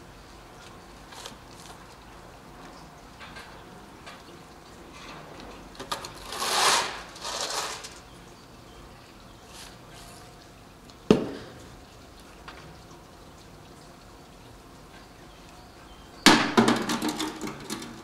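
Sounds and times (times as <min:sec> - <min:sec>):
plastic shovel scraping soil: 0:05.9 - 0:08.0.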